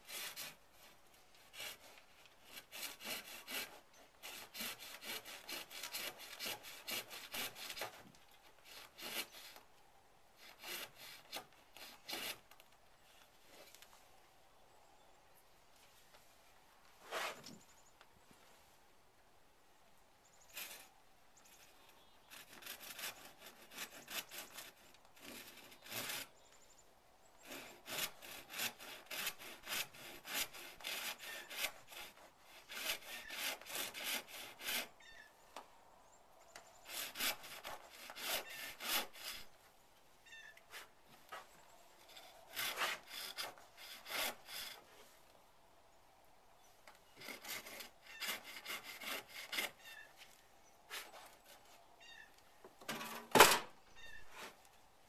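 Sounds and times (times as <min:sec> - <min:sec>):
handsaw cutting wood: 0:00.0 - 0:09.6, 0:10.4 - 0:12.5, 0:22.3 - 0:26.3, 0:27.4 - 0:34.9, 0:36.8 - 0:39.6, 0:42.0 - 0:45.0, 0:47.2 - 0:49.8, 0:50.9 - 0:51.7.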